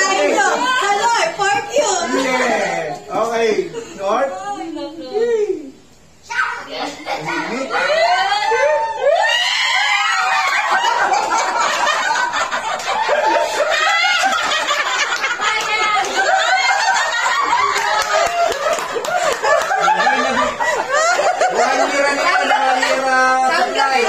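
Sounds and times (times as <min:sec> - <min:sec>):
excited shouts: 0:06.2 - 0:11.4, 0:13.2 - 0:14.6
people laughing and shrieking: 0:07.0 - 0:24.0.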